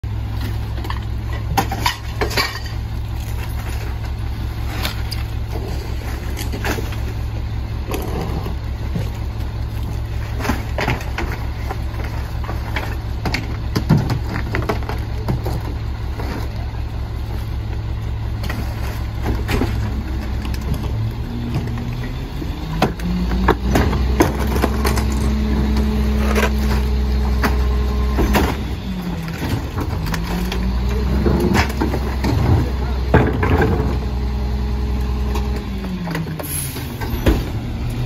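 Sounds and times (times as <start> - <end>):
diesel truck engine idling: 0.0 - 38.0
trash thumping into hopper: 18.4 - 34.3.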